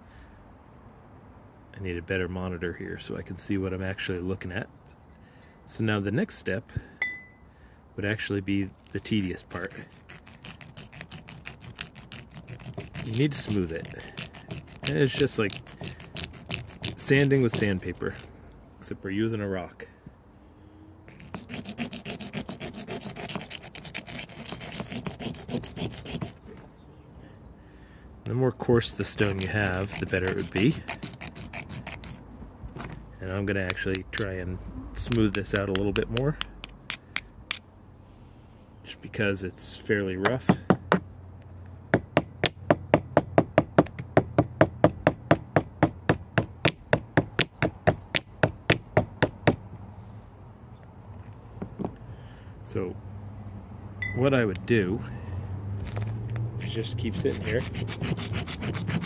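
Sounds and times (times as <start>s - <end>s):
shell scraping on stone: 8.8s - 18.3s, 21.1s - 26.4s, 28.8s - 34.4s, 35.0s - 37.6s, 55.8s - 59.0s.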